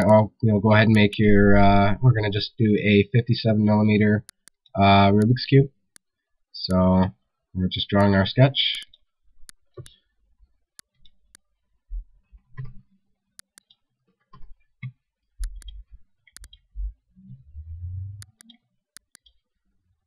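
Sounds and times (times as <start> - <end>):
computer mouse buttons clicking: 13.4 - 13.8, 15.4 - 16.6, 18.2 - 19.4
low dull thumps and rumbles: 16.7 - 18.2.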